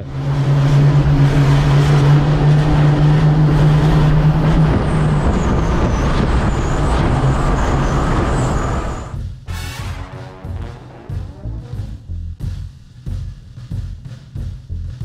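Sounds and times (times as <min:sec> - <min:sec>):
loud rushing noise: 0:00.0 - 0:11.4
low engine drone: 0:00.0 - 0:12.4.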